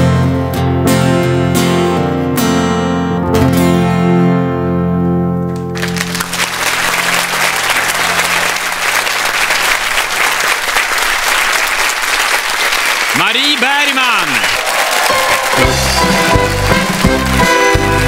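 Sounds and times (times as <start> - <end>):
audience applause: 5.8 - 18.0.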